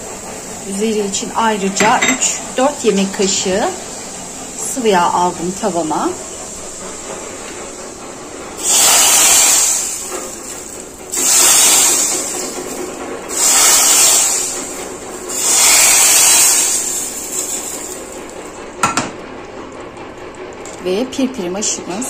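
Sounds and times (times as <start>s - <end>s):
oil hissing poured over stew: 8.6s - 12.7s, 13.3s - 18.4s
hot oil sizzling in a pan: 8.6s - 19.0s.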